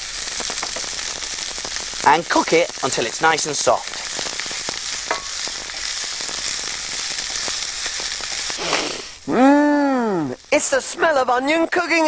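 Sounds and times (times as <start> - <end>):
onion sizzling in a frying pan: 0.0 - 12.0
person humming: 8.6 - 10.4.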